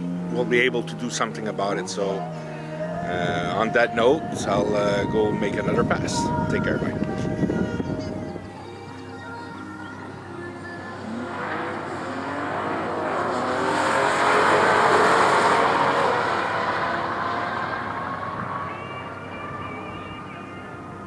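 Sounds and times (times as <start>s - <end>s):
car engine at full throttle: 0.0s - 3.7s, 10.8s - 21.0s.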